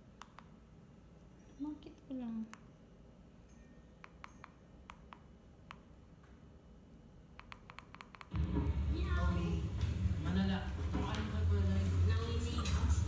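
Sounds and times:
voices from television: 8.3 - 13.0.

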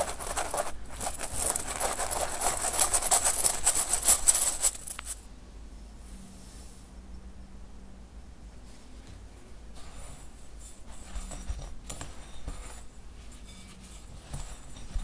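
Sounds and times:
flour rubbed through mesh sieve: 0.0 - 5.2.

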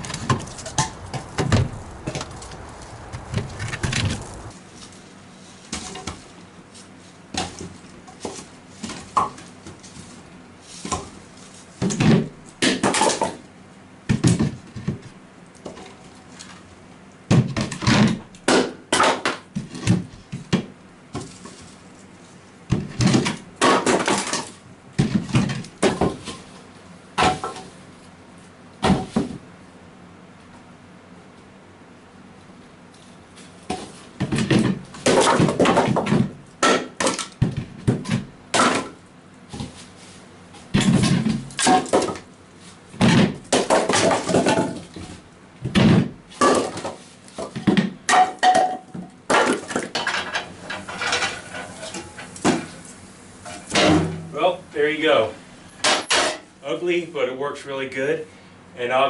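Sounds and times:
logs knocking onto concrete: 33.7 - 39.0, 40.8 - 42.2, 43.0 - 45.1.

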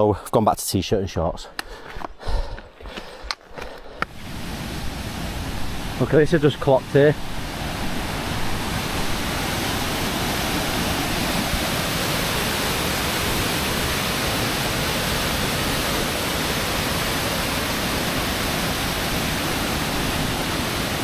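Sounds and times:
waterfall rushing: 4.0 - 21.0.

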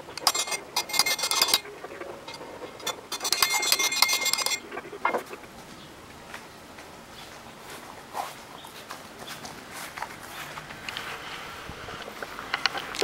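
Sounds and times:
rapid metallic clinking: 0.0 - 4.8.

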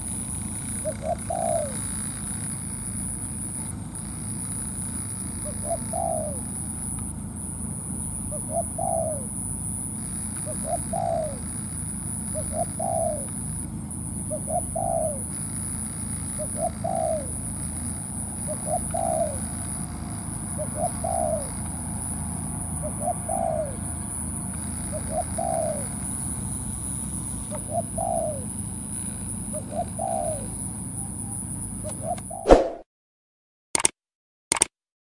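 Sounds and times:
dove cooing: 0.6 - 2.0, 5.4 - 6.6, 8.2 - 9.4, 10.2 - 11.6, 12.2 - 13.3, 14.3 - 15.4, 16.3 - 17.4, 18.2 - 26.3, 27.4 - 32.4.

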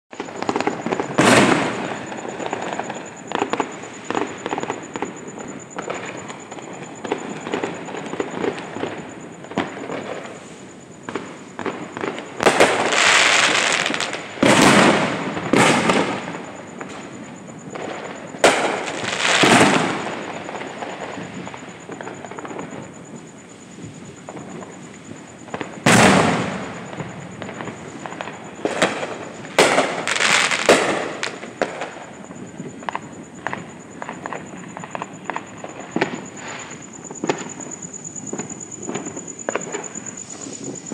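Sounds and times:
firework shells bursting: 0.1 - 10.4, 25.4 - 32.1
firework crackling pops: 0.1 - 40.9.

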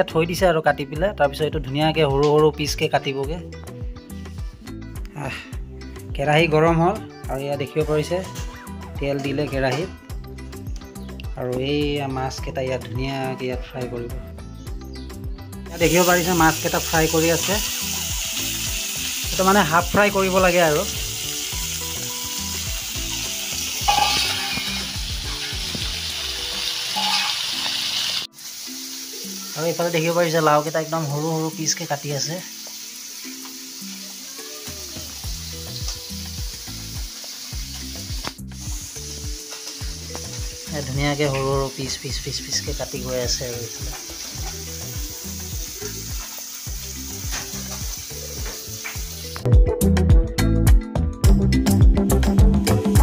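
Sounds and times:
background music: 0.0 - 53.0
fish sizzling in hot oil: 15.7 - 49.5
music with a regular beat: 21.0 - 27.6, 34.2 - 40.8, 43.3 - 53.0.

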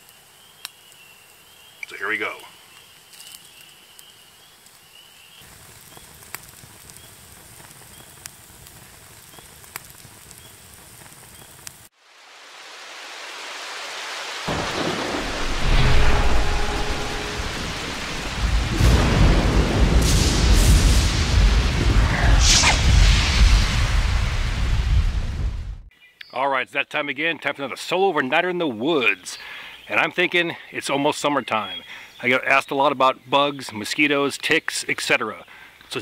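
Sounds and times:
campfire crackling: 0.0 - 25.9
rain: 0.0 - 25.9
thunder rolling: 14.5 - 25.9.

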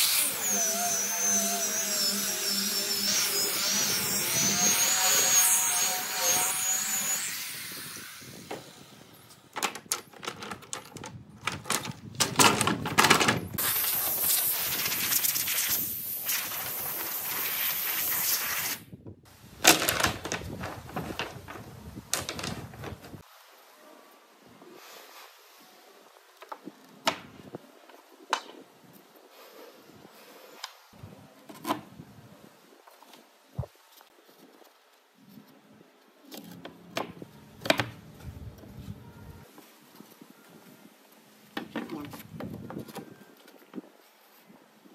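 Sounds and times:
wooden slats clattering: 9.6 - 13.6
steady hiss: 13.6 - 19.5.

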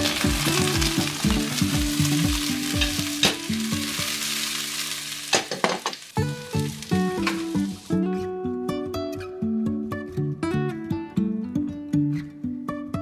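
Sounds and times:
vegetables sizzling in oil: 0.0 - 8.3
frying pan knocks: 5.3 - 6.1.

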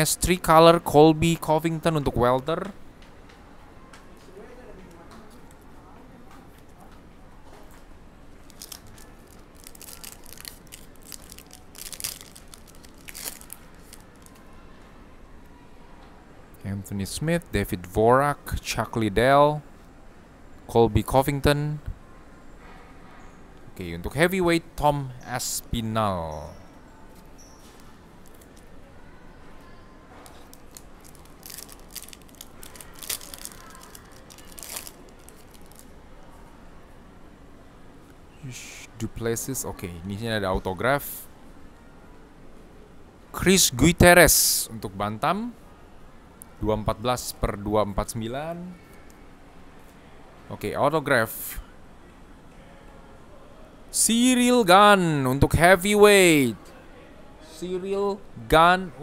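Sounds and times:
cards being shuffled: 8.5 - 14.4, 30.3 - 35.9
foil wrapper tearing and crinkling: 8.5 - 14.4, 30.3 - 35.9.

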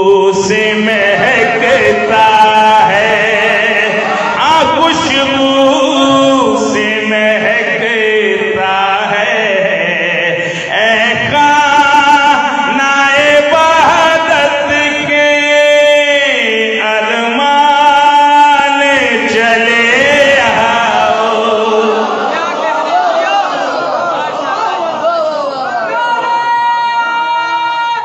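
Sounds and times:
man chanting over loudspeakers: 0.0 - 23.0, 25.1 - 28.0.

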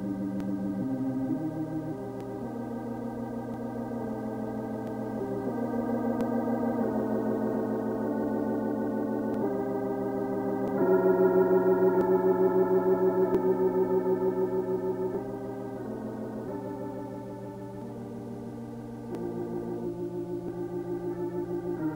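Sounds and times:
organ chords with tremolo: 0.0 - 21.9.

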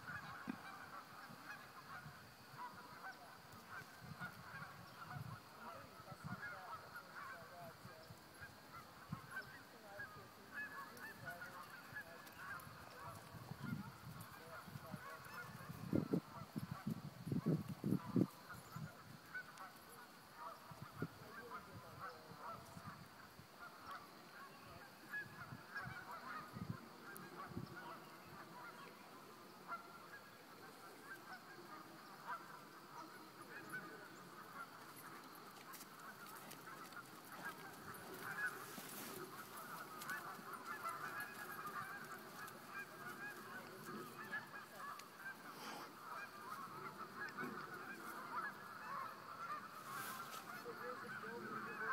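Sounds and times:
geese honking: 0.0 - 51.9.

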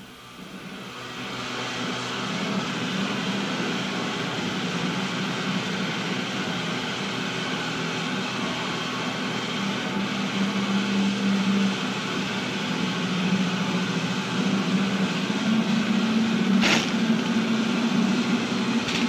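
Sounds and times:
steady rushing hum: 14.4 - 19.0.

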